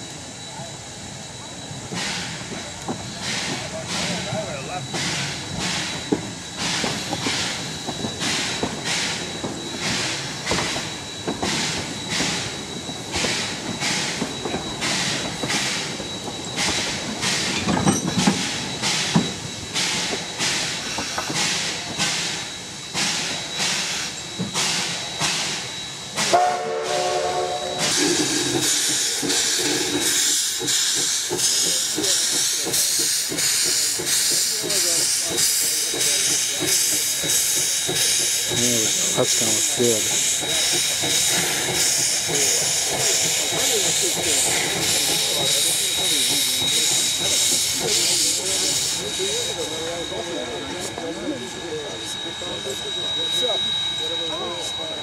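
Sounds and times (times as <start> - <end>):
steam hissing: 0.0 - 55.0
train coaches rolling by: 0.0 - 55.0
steam whistle blast: 26.2 - 28.6.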